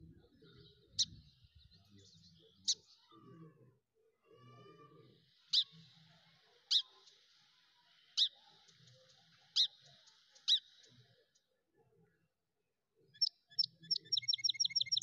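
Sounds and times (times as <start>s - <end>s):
small animal chirping: 9.5s - 10.8s, 13.2s - 15.0s.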